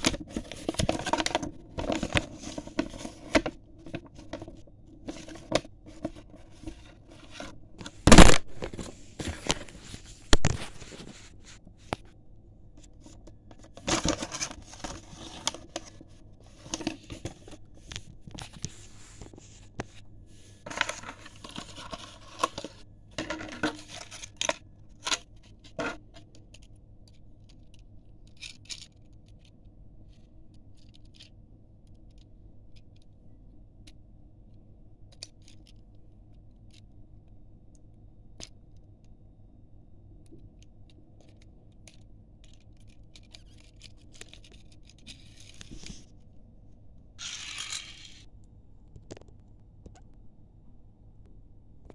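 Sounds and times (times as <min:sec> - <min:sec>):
plastic packaging rustling and tearing: 0:00.0 - 0:11.6, 0:13.8 - 0:19.4.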